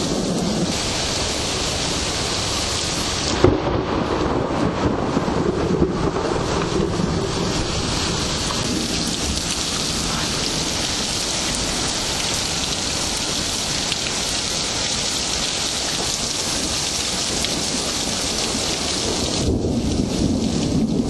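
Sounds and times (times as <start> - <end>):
low thunder rumble: 0.0 - 21.0
steady rain hiss: 0.0 - 21.0
raindrop ticks: 8.3 - 19.0.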